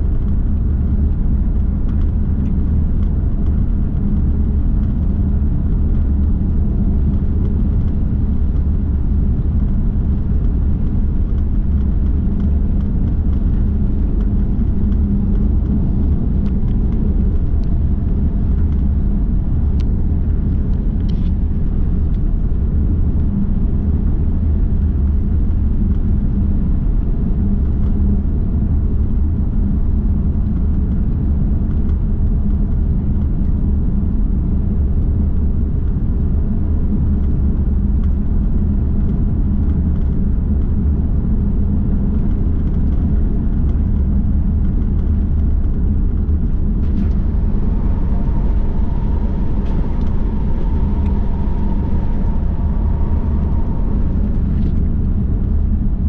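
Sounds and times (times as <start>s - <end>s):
car cruising heard from inside: 45.2s - 56.0s.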